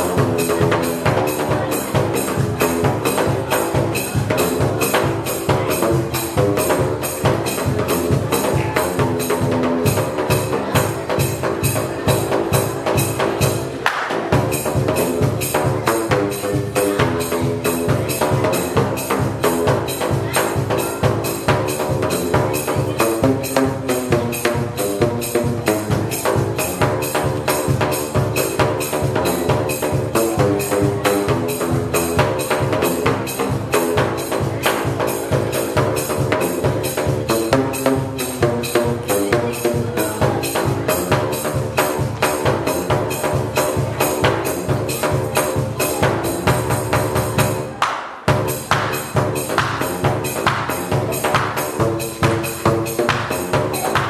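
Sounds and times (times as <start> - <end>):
pipes slapped with flip-flops: 13.8 - 14.2.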